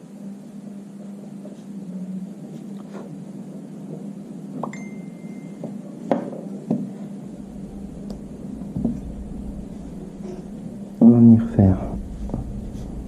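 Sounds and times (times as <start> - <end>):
low hum: 7.2 - 13.0.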